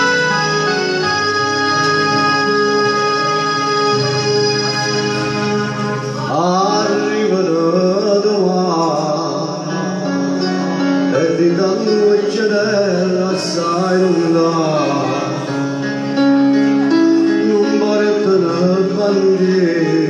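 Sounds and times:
amplified backing music: 0.0 - 20.0
man singing into a microphone: 6.1 - 20.0.

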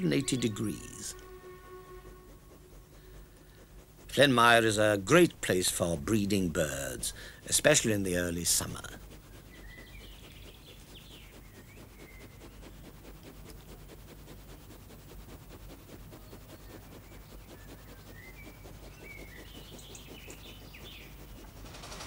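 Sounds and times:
birds chirping: 0.0 - 13.7, 16.0 - 22.0.

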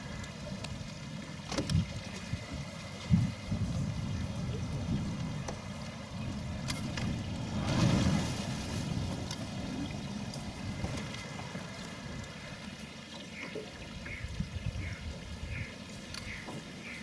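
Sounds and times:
boat engine rumble: 0.0 - 17.0
water noise: 0.0 - 17.0
wind noise: 1.5 - 11.5.

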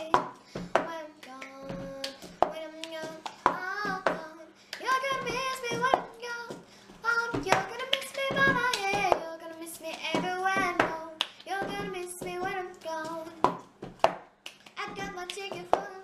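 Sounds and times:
child singing: 0.0 - 13.5, 14.8 - 16.0
hands clapping: 14.1 - 15.9.

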